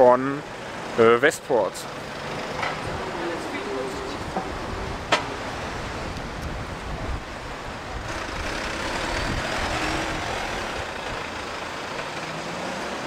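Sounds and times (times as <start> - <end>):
vehicle driving past: 7.4 - 13.0.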